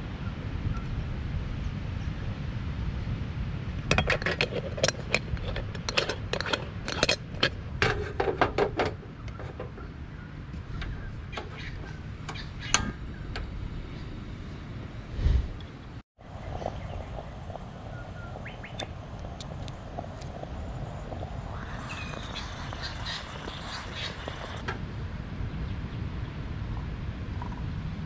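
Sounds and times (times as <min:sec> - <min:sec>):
metal clinks of moka pot: 0:03.8 - 0:08.7, 0:21.5 - 0:24.6
low rumble: 0:10.0 - 0:27.7.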